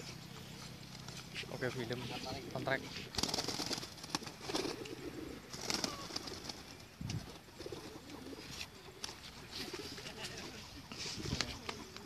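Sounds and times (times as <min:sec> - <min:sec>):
pigeon wings flapping: 0:03.0 - 0:06.9, 0:07.6 - 0:12.0.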